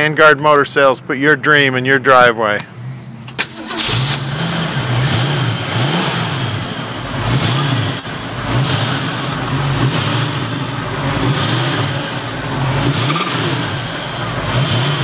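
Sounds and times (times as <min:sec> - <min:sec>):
car engine revving: 0:03.2 - 0:15.0.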